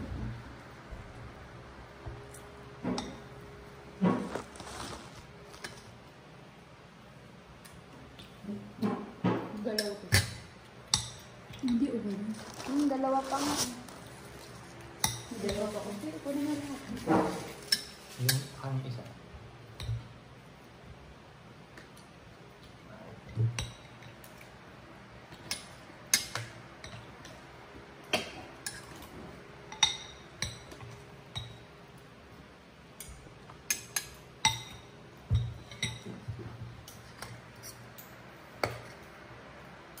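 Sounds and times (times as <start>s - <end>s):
cutlery clinking on plates: 33.6s - 38.9s.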